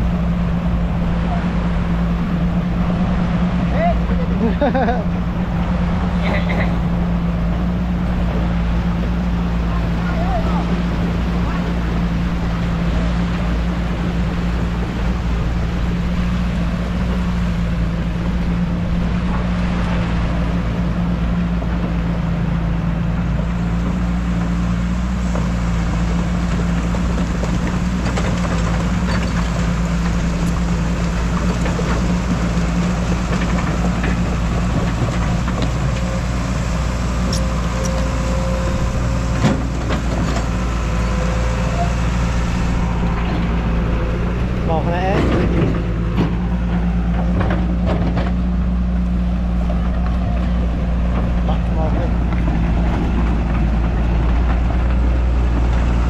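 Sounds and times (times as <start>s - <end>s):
engine running steadily: 0.0s - 56.0s.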